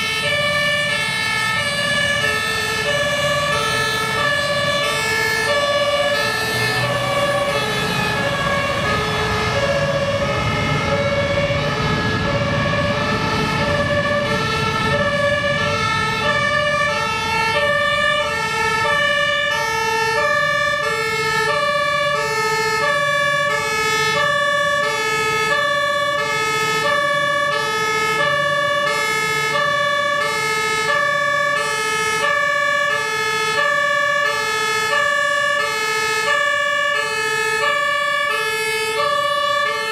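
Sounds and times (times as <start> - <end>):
two-tone emergency siren: 0.0 - 39.9
truck engine running: 0.4 - 18.2.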